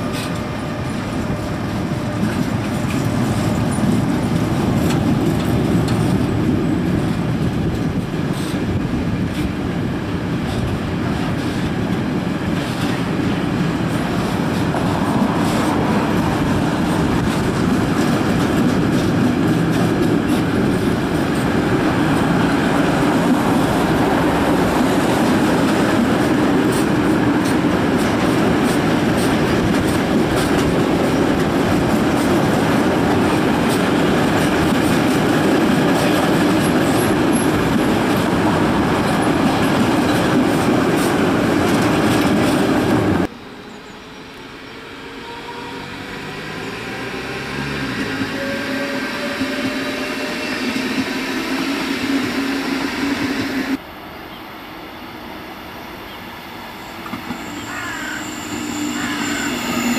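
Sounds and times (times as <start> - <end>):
freight train wheels rumbling: 0.0 - 59.9
electric train motor whine: 43.4 - 59.9.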